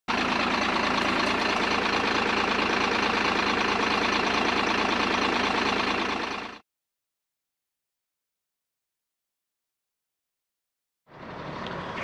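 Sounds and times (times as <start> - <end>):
truck engine running: 0.1 - 6.6, 11.1 - 12.0.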